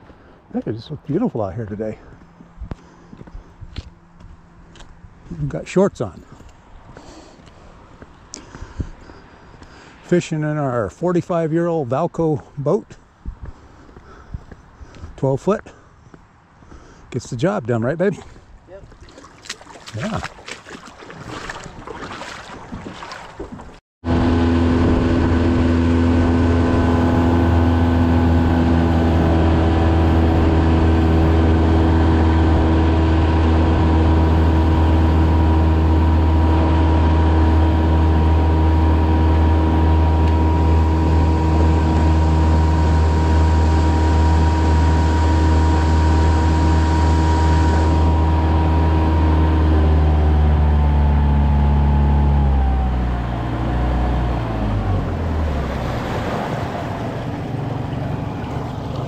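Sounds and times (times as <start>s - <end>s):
outboard motor running: 1.6s - 10.1s, 18.2s - 59.0s.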